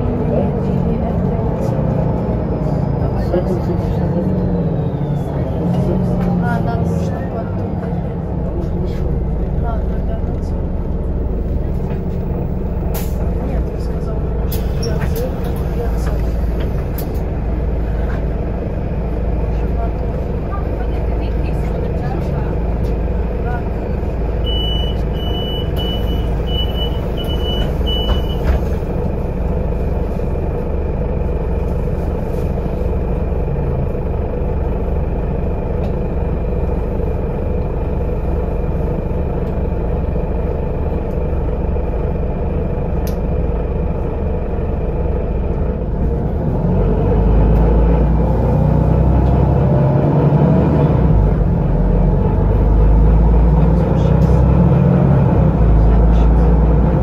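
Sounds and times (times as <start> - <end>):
bus engine humming: 0.0 - 57.0
bus door warning beeps: 24.4 - 28.7.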